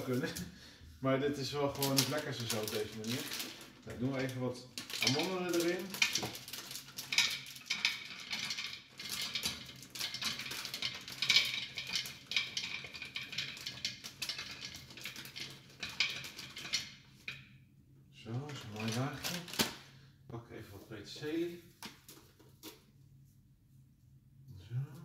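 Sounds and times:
nuts clattering into glass container: 1.8s - 17.4s.

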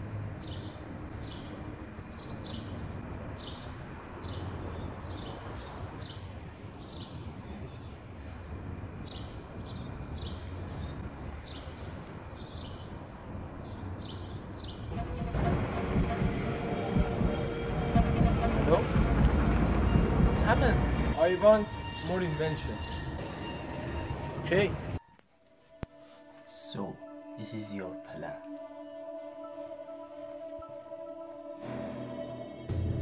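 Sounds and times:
small birds chirping: 0.4s - 8.4s, 9.0s - 14.9s
low background rumble: 14.9s - 21.2s.

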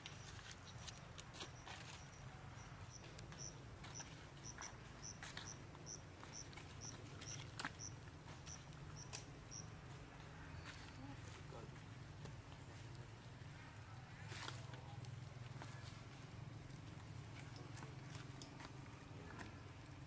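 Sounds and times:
light ticks and rustles: 0.0s - 20.0s
insect chirping: 1.6s - 9.7s.

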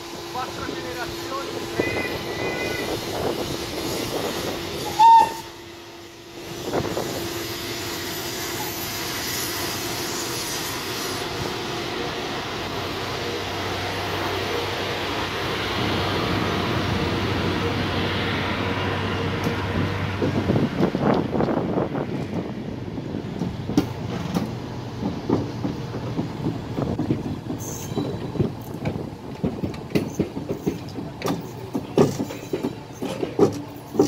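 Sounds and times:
electric train running on rails: 0.0s - 34.0s
train horn blast: 1.6s - 3.0s, 4.8s - 5.7s.

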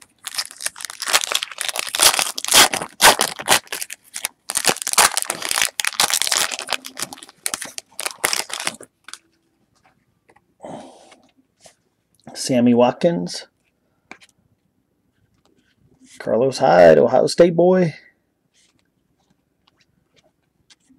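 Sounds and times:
foil wrapper tearing and crinkling: 0.0s - 9.2s.

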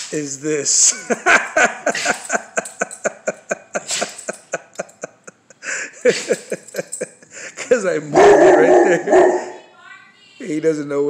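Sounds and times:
man laughing in pulses: 0.8s - 7.7s, 8.6s - 9.5s.

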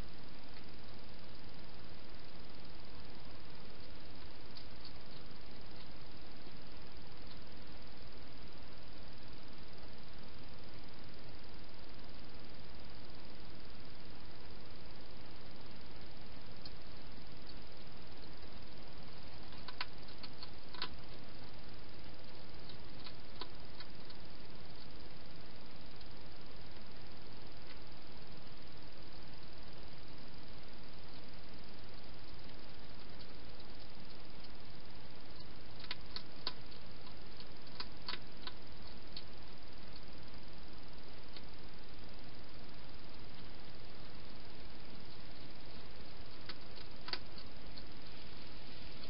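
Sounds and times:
steady hiss: 0.0s - 49.0s
hedgehog eating clicks and crunches: 19.1s - 21.4s, 22.2s - 25.0s, 31.9s - 40.1s, 45.0s - 48.1s.

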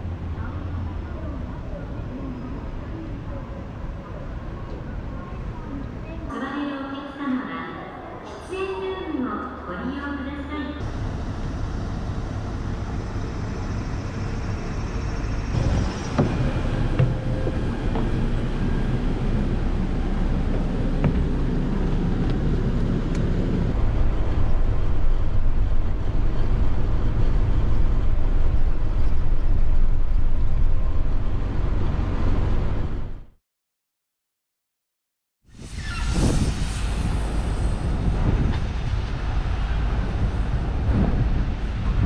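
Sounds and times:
bus engine rumbling: 9.7s - 33.4s, 35.8s - 42.0s.

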